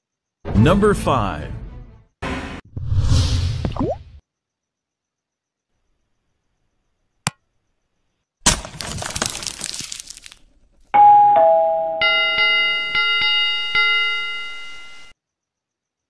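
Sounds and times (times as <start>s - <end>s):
two-note doorbell ding-dong: 11.0s - 15.1s.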